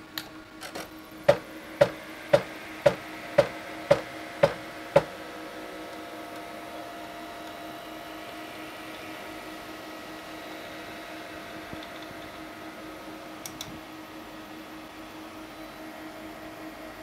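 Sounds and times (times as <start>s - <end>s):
motor and fan hum: 0.0s - 17.0s.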